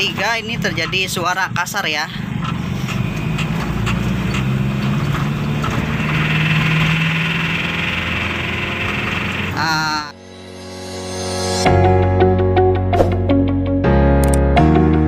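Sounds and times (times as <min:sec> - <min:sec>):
rough rattling engine: 0:00.0 - 0:09.8
music: 0:10.1 - 0:15.0.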